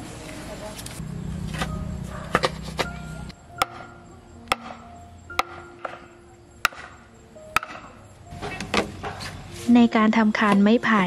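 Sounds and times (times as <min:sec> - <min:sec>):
faint background music: 0:00.0 - 0:11.0
sharp wooden knocks: 0:03.6 - 0:07.0, 0:07.6 - 0:09.2
post thudding into soil: 0:07.6 - 0:09.4.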